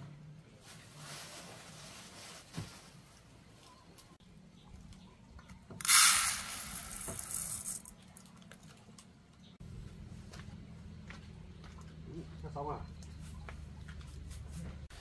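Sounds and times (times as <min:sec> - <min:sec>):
rice poured into metal pot: 0:05.8 - 0:07.9.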